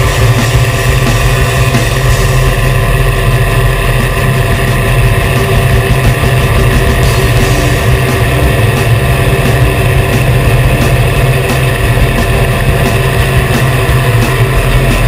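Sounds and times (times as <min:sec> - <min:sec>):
rushing air: 0:00.0 - 0:15.0
twin piston engines droning: 0:00.0 - 0:15.0.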